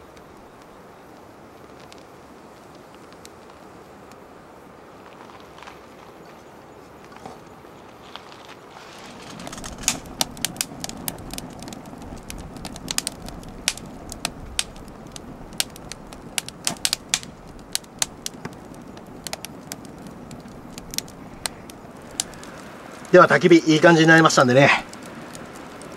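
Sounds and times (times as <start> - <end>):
wood fire crackling and popping: 0.0 - 6.1, 7.0 - 25.9
low rush of flame: 7.4 - 25.9.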